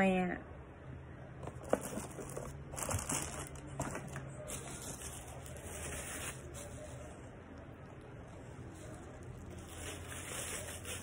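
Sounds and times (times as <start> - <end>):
bubble wrap crinkling: 1.6 - 7.2, 8.3 - 11.0.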